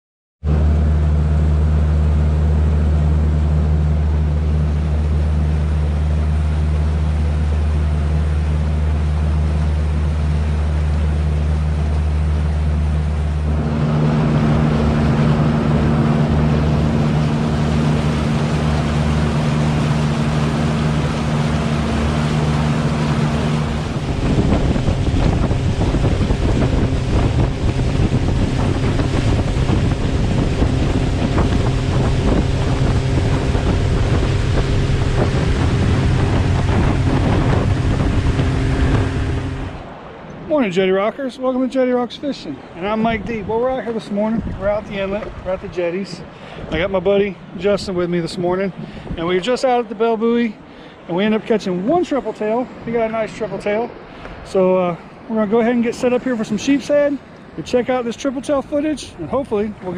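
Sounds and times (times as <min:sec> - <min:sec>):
outboard motor running: 0:00.4 - 0:40.3, 0:42.6 - 0:59.9
water noise: 0:00.4 - 0:59.9
wind on microphone: 0:02.2 - 0:40.5, 0:42.8 - 0:45.8, 0:46.6 - 0:49.8.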